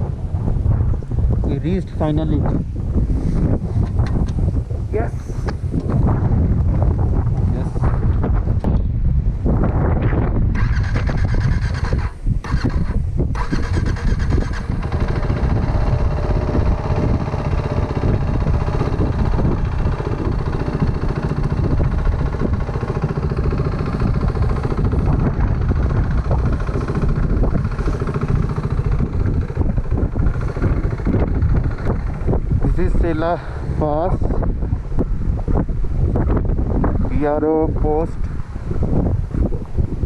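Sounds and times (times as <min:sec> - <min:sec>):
wind rumbling on microphone: 0:00.0 - 0:40.0
motorcycle engine running: 0:09.6 - 0:40.0.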